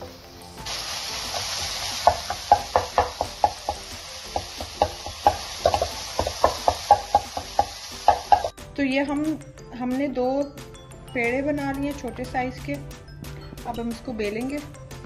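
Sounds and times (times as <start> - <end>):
chicken sizzling in a wok: 0.0 - 8.6
spoon knocking against pan: 1.4 - 8.6.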